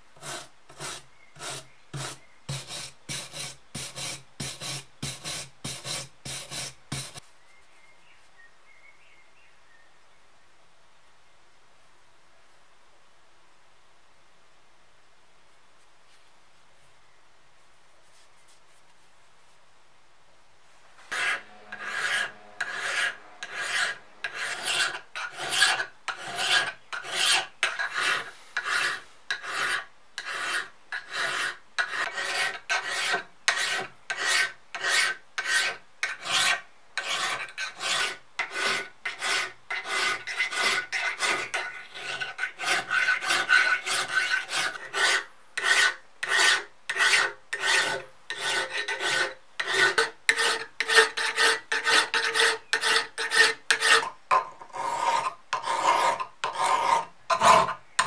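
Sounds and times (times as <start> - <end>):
file scraping metal: 0.2 - 7.2, 21.0 - 58.0.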